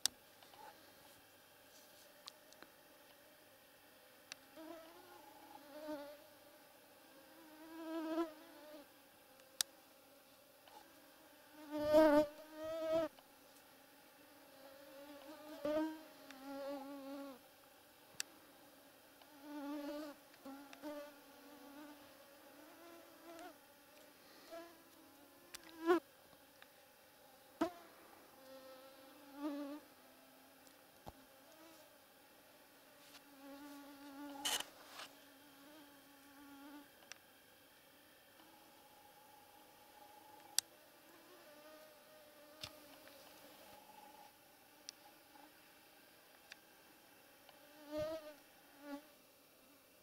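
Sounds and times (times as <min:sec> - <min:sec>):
mosquitoes whining: 0:38.4 - 0:45.5.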